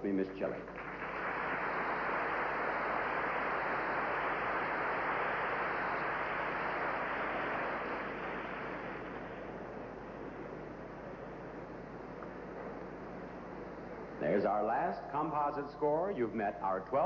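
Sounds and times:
audience applauding: 0:00.7 - 0:10.4.

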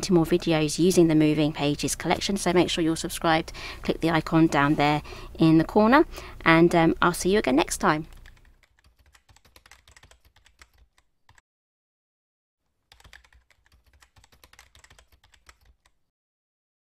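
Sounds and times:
keyboard typing clicks: 0:08.1 - 0:11.4, 0:12.9 - 0:16.0.

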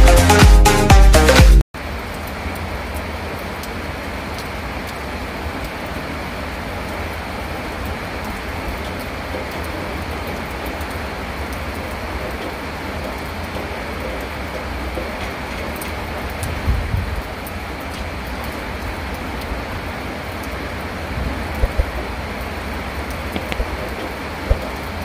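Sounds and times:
floodwater rushing: 0:01.8 - 0:25.0
heavy rain roar: 0:01.8 - 0:25.0
faint ticks: 0:21.6 - 0:22.0, 0:23.4 - 0:24.8.

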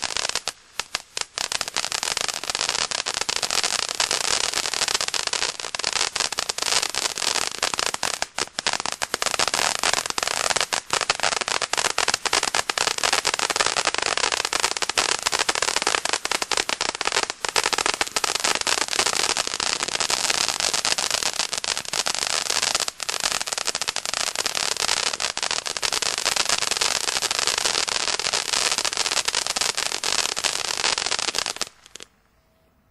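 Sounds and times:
firework fountain hissing and crackling: 0:00.0 - 0:32.1.

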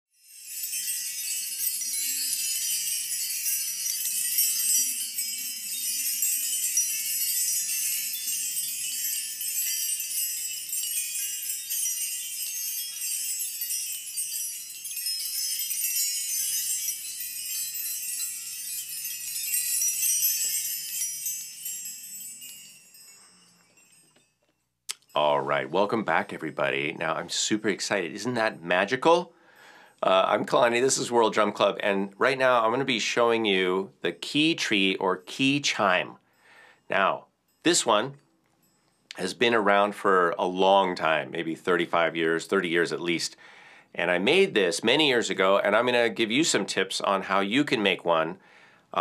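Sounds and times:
keys jingling and clinking: 0:00.3 - 0:24.6.

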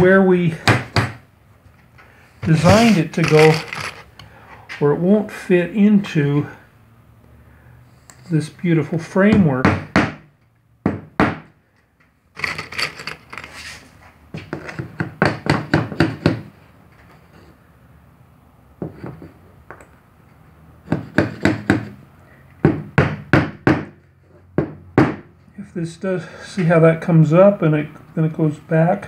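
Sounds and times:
hammer tapping nails into wood: 0:14.5 - 0:16.5, 0:20.9 - 0:22.0.

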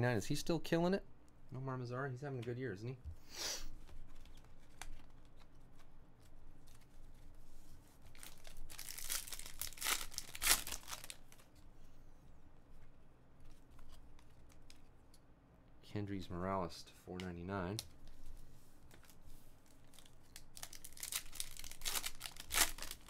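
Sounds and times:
foil pack tearing and crinkling: 0:08.1 - 0:11.4, 0:19.9 - 0:23.0.

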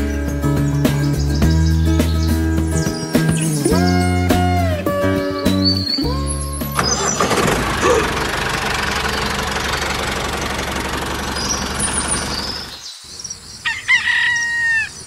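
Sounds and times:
small engine running: 0:06.7 - 0:12.8.

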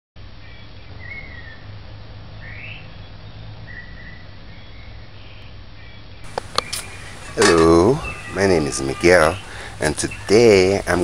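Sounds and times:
bird chirps: 0:02.5 - 0:11.0.

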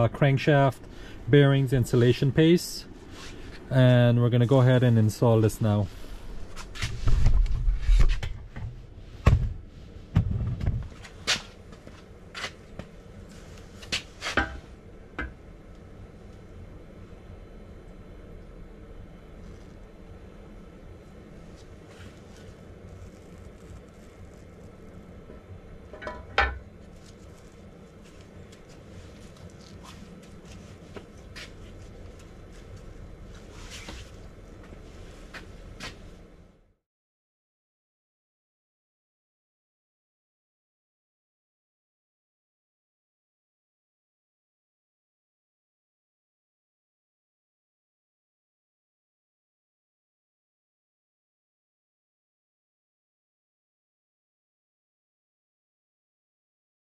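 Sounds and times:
metallic clunk with ring: 0:26.0 - 0:26.6.

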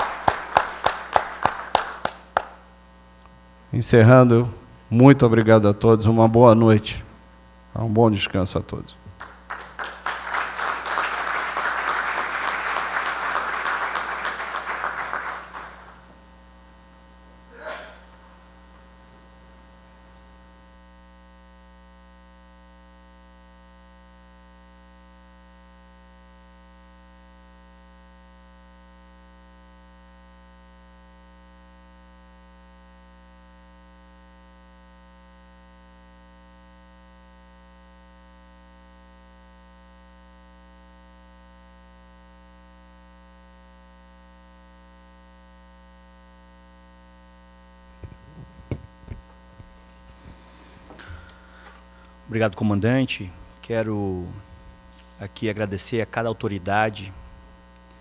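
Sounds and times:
audience applauding: 0:00.0 - 0:02.6, 0:09.2 - 0:16.1
electrical mains hum: 0:00.0 - 0:58.0.

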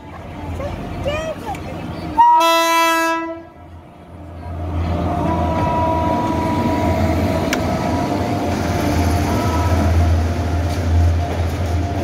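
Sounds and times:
electric locomotive passing: 0:00.0 - 0:12.0.

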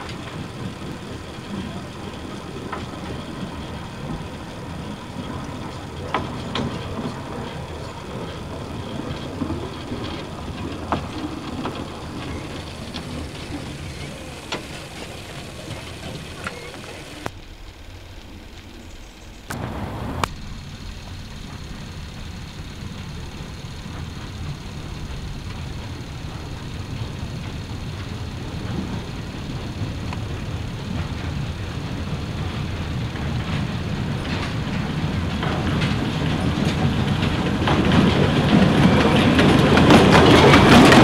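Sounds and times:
steam train rumble and hiss: 0:00.0 - 0:41.0.

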